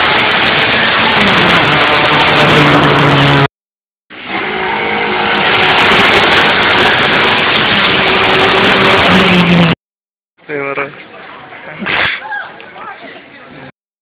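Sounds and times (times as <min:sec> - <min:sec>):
race car engines revving: 0:00.0 - 0:03.5, 0:04.1 - 0:09.8.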